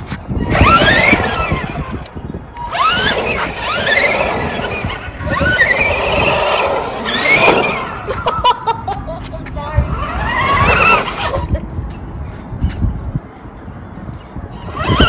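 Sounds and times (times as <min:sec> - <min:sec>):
tyres rumbling on asphalt: 0:00.0 - 0:15.0
rc truck motor whining: 0:00.3 - 0:08.4, 0:09.9 - 0:11.5, 0:14.5 - 0:15.0.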